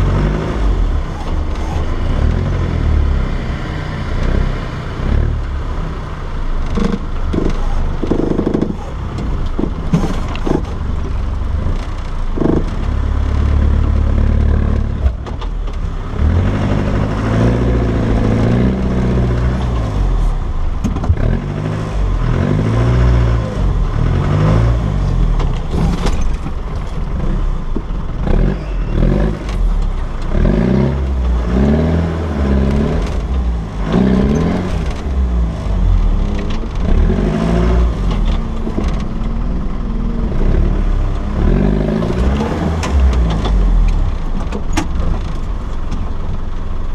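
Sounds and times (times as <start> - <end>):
off-road vehicle engine revving: 0.0 - 46.9
vehicle knocks and clatter: 6.5 - 22.4, 23.7 - 46.9.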